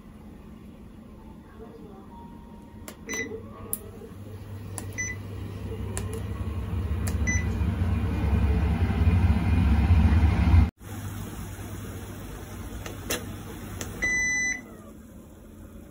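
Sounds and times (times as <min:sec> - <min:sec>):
cooktop electrical hum: 0:00.0 - 0:15.9.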